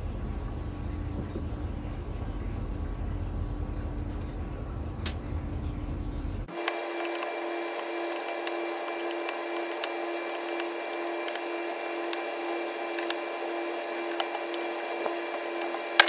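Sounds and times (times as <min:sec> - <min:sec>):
machine hum: 0:00.0 - 0:16.0.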